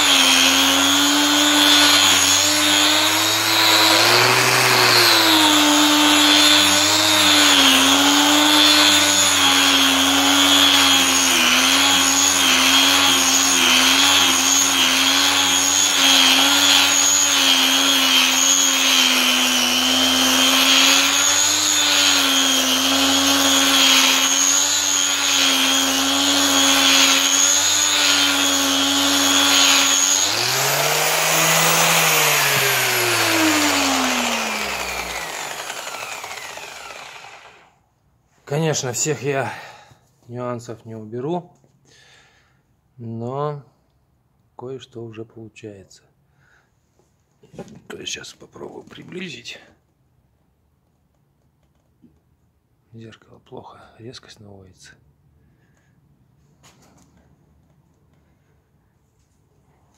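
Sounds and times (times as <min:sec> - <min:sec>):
electric power tool running: 0:00.0 - 0:37.7.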